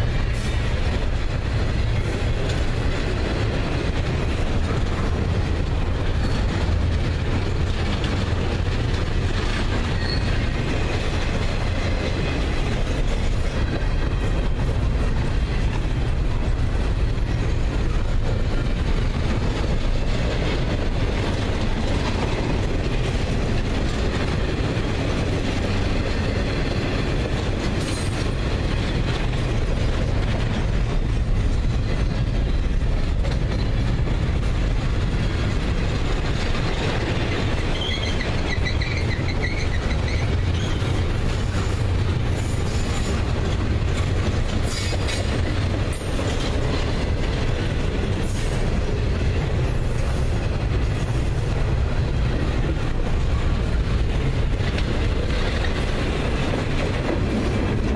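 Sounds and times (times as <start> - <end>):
train wheels rumbling on rails: 0.0 - 57.9.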